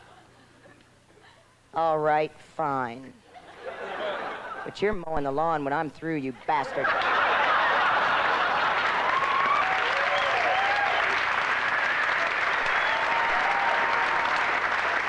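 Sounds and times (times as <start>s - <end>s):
audience applauding: 6.8s - 15.0s
crowd whooping: 6.8s - 15.0s.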